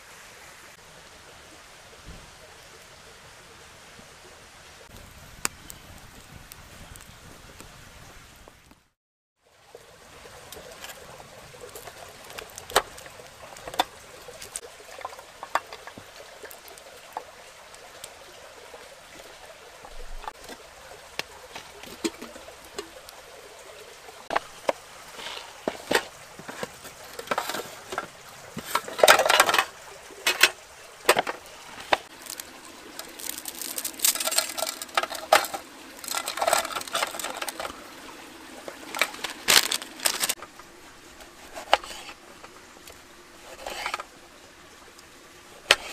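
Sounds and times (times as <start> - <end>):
faint outdoor hiss: 0.0 - 45.9
small clicks and knocks: 11.7 - 17.3
packaging crinkling and rustling: 31.1 - 37.8, 38.7 - 40.4.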